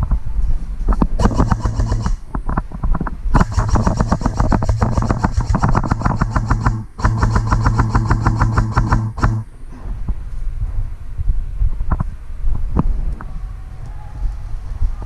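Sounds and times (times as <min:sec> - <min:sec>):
airsoft gun firing bursts: 0:01.2 - 0:02.3, 0:03.4 - 0:09.5.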